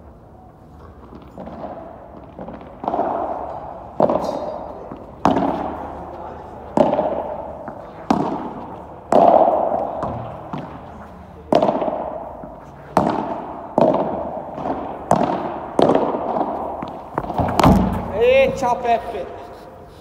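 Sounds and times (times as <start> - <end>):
padel ball popping off rackets: 1.0 - 18.7.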